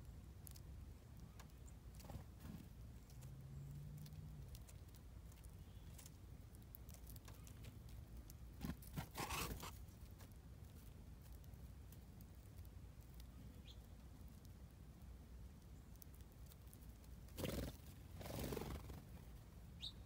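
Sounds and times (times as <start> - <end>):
faint low hum: 0.0 - 20.0
birds pecking clicks: 0.4 - 8.9
bird wingbeats: 17.4 - 19.1.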